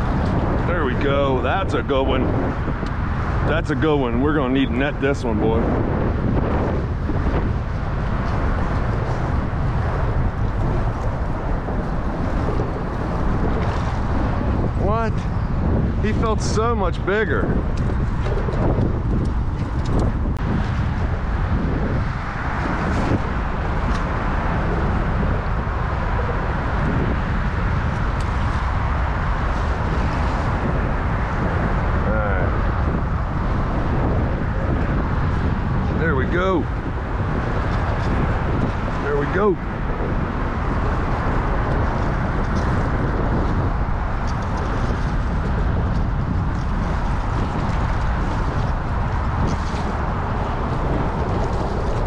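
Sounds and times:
choppy water washing around boat: 0.0s - 52.0s
wind buffeting microphone: 0.0s - 52.0s
water washing against boat hull: 32.8s - 52.0s.

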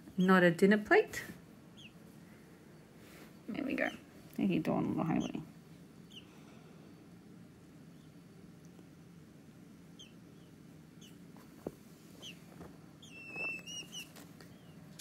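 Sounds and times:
peachick peeping: 1.7s - 2.1s, 4.6s - 6.4s, 7.6s - 8.7s, 9.8s - 11.3s, 12.1s - 14.8s.

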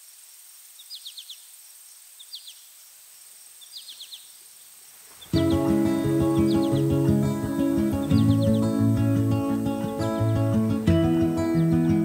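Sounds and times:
faint outdoor hiss: 0.0s - 12.0s
music: 5.3s - 12.0s.

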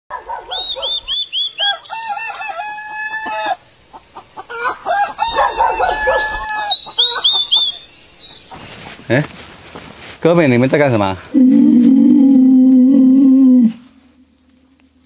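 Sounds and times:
small bird chirping: 0.3s - 2.2s, 5.6s - 9.2s
rooster crowing: 1.6s - 3.6s, 4.5s - 7.8s.

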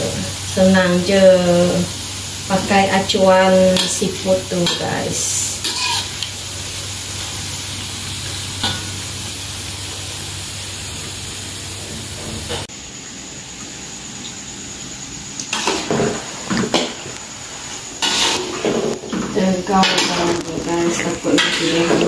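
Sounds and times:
dough sizzling in hot oil: 0.0s - 22.0s.

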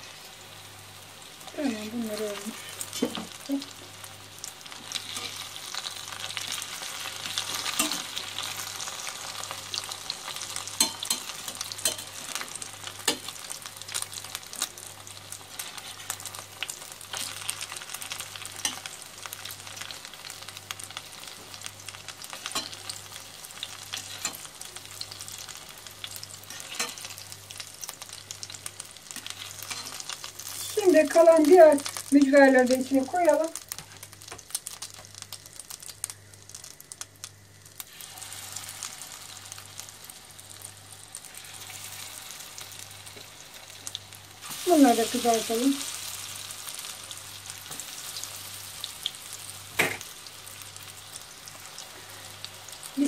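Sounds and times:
oil sizzling in a pot: 0.0s - 53.0s.

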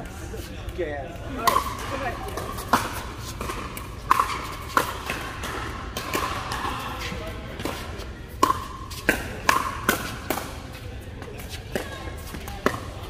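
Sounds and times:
paddles hitting plastic ball: 8.4s - 10.6s.

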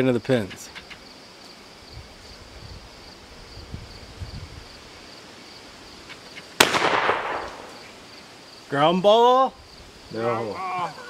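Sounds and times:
insects chirping: 0.0s - 11.0s
shotgun blast echoing: 6.6s - 7.8s.

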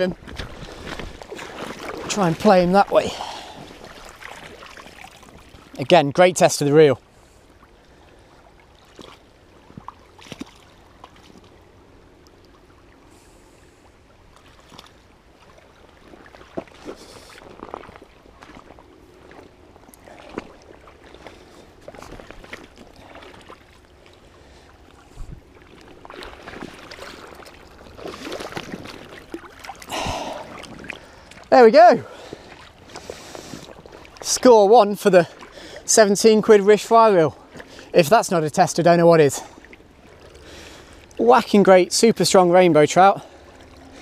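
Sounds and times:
knocks and splashes: 0.0s - 5.8s, 8.8s - 11.6s, 14.4s - 24.1s, 25.2s - 31.5s
running river water: 0.0s - 44.0s.

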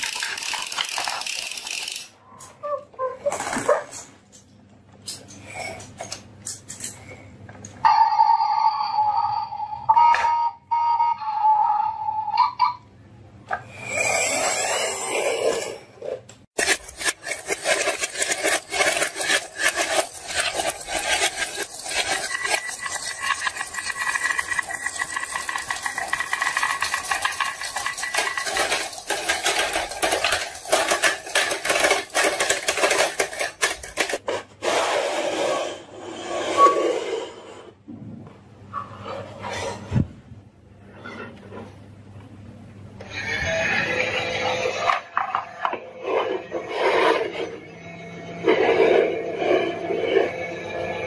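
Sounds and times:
marbles rattling down wooden track: 0.0s - 2.1s, 16.6s - 34.2s.

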